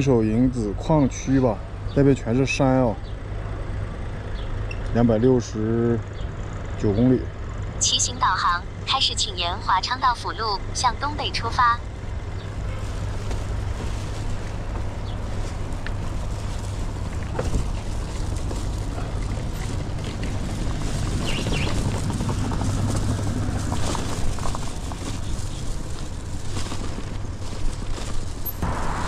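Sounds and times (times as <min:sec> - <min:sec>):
road noise: 0:00.0 - 0:29.0
wind rumble on microphone: 0:12.4 - 0:29.0.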